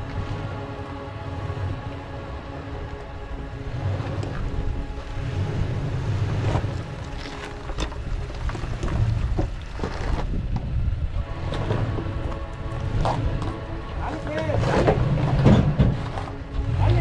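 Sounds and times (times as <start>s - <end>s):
truck engine rumbling: 0.0s - 17.0s
rocks crunching under tyres: 3.8s - 17.0s.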